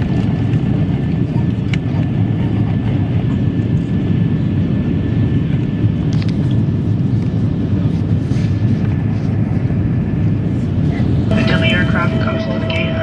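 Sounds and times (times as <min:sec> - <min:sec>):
aircraft cabin rumble: 0:00.0 - 0:13.0
faint steady whine: 0:11.3 - 0:13.0.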